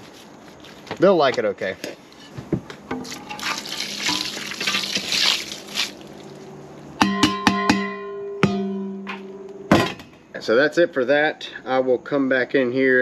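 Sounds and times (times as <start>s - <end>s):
wet contents splashing: 3.0s - 6.6s.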